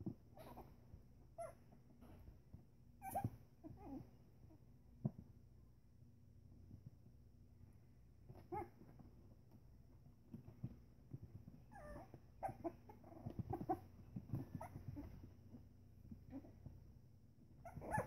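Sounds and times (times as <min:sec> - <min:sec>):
puppies squeaking and whimpering: 0:03.0 - 0:04.0, 0:11.7 - 0:15.2, 0:17.6 - 0:18.0.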